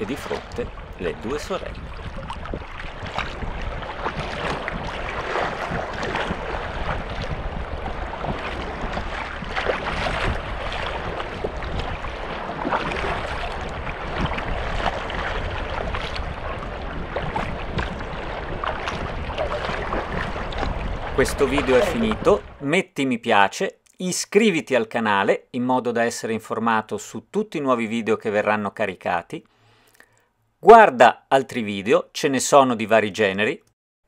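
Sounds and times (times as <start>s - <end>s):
water splashing around kayak: 0.0s - 22.6s
wind rumble on microphone: 0.0s - 22.6s.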